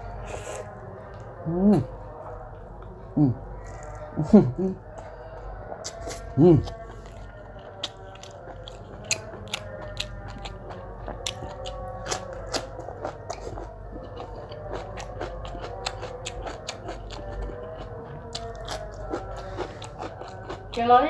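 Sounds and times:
crisp crunching and chewing: 5.1 - 20.8.

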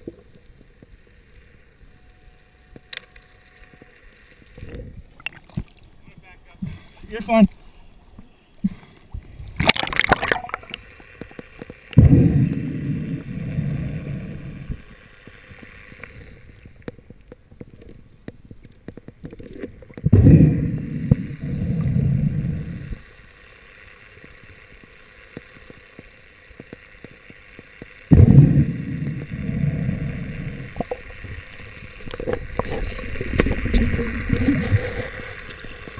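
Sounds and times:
water splash: 9.6 - 10.8, 12.0 - 13.4, 28.1 - 31.1.

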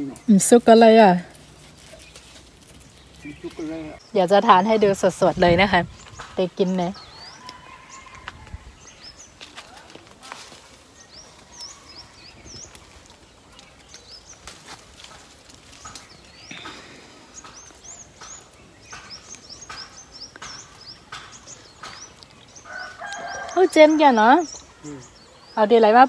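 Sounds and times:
leafy branches rustling: 0.0 - 26.0
small birds chirping: 0.0 - 26.0.

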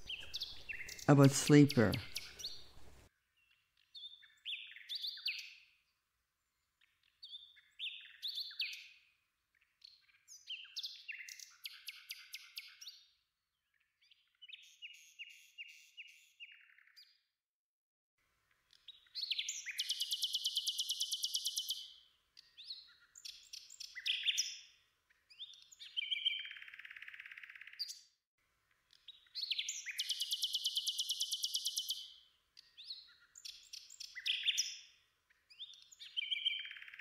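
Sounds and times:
nightingale singing: 0.0 - 5.6, 7.1 - 9.0, 18.7 - 24.7, 25.3 - 28.0, 28.9 - 34.9, 35.5 - 37.0.

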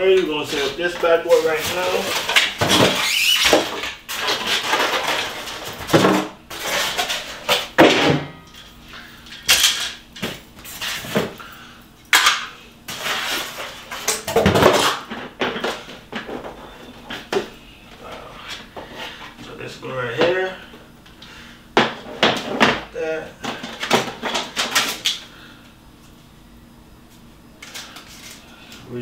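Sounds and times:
hard plastic parts clattering: 0.1 - 8.2.

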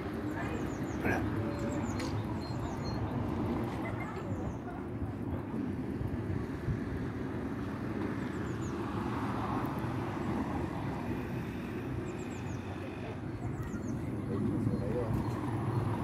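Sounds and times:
small birds chirping: 0.1 - 4.9, 8.1 - 16.0.

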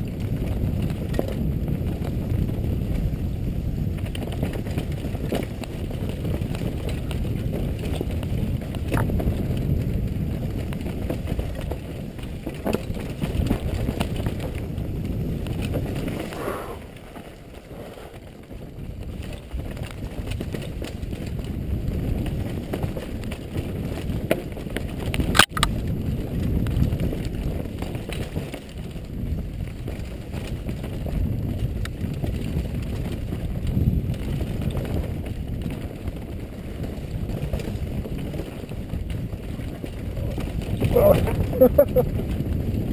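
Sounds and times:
bike rattling over rocks: 0.0 - 42.9
wind and tyre noise: 0.0 - 42.9.

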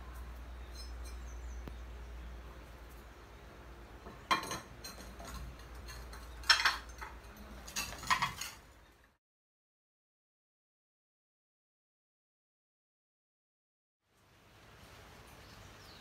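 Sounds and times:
ceramic plates clinking: 4.1 - 8.9.

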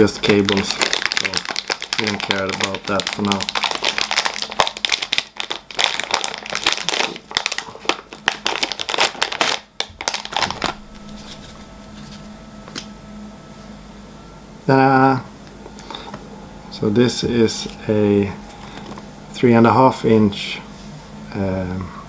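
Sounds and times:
plastic bag crinkling: 0.0 - 12.2
faint steady hum: 0.0 - 22.0.

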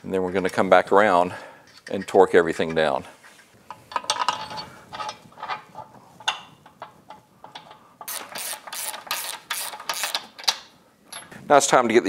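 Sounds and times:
socket ratchet clicking: 8.0 - 10.6.

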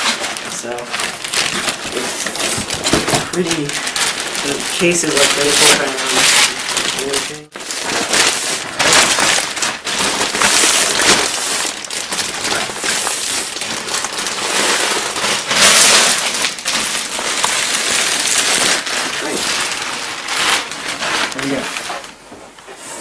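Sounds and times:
plastic bag crinkling: 0.0 - 22.2.

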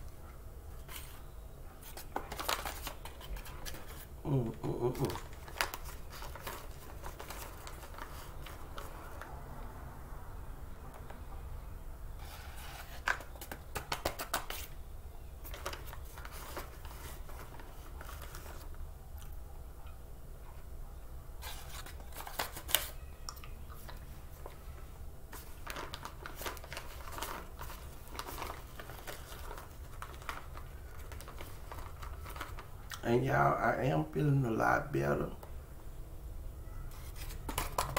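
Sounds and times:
plastic bag crinkling: 1.9 - 9.3, 25.3 - 33.0.

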